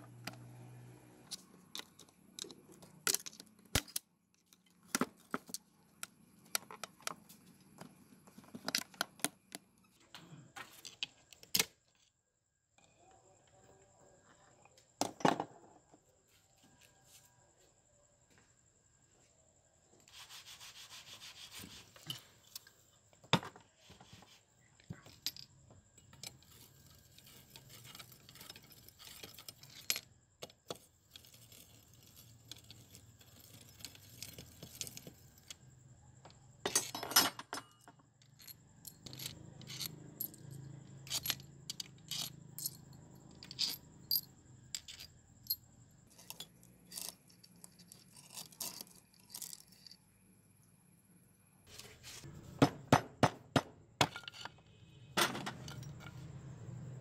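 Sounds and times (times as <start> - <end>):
metal parts and tools clinking: 1.2 - 7.2, 24.8 - 35.7, 36.6 - 50.0, 54.0 - 54.6, 55.2 - 56.3
sharp knocks on metal: 52.6 - 54.3.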